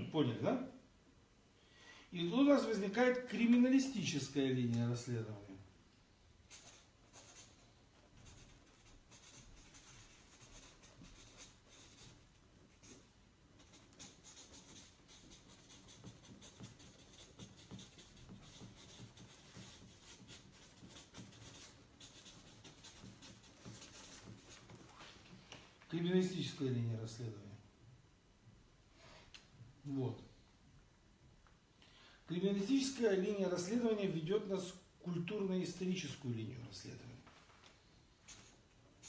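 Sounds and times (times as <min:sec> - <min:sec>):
pen writing on notebook: 0:06.5 - 0:07.6, 0:08.2 - 0:13.0, 0:13.6 - 0:24.9
felt marker scratching on paper: 0:06.5 - 0:24.9, 0:38.2 - 0:39.0.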